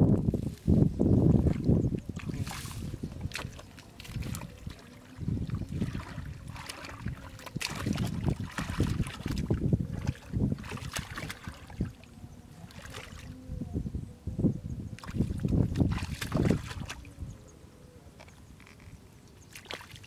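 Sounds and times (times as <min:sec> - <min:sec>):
hands sloshing through muddy water: 0:01.2 - 0:13.4, 0:15.0 - 0:17.1, 0:19.5 - 0:20.0.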